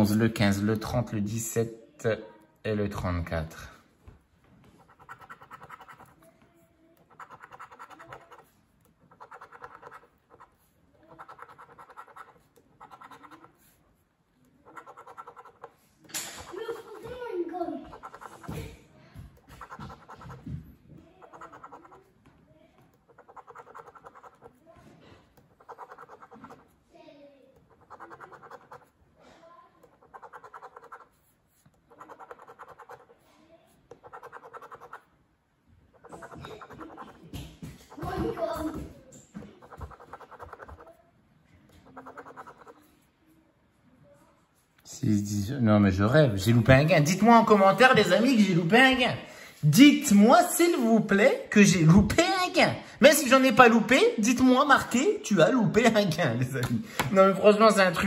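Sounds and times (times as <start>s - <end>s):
coin scraping scratch-off ticket: 14.6s - 16.9s, 21.2s - 22.1s, 23.0s - 24.6s, 25.4s - 26.6s, 27.7s - 28.9s, 29.9s - 31.2s, 31.8s - 33.2s, 33.9s - 35.0s, 39.6s - 40.8s, 41.8s - 42.8s.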